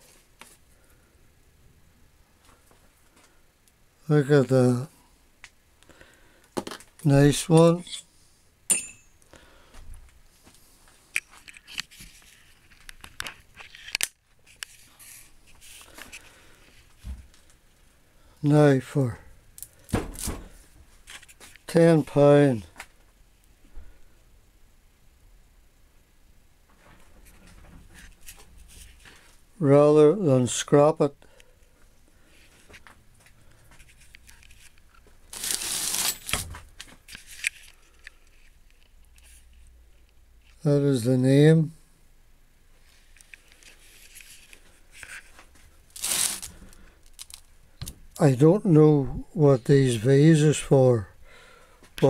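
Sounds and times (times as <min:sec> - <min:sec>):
rough scraping rustle: 0:33.8 - 0:38.6, 0:42.8 - 0:47.4.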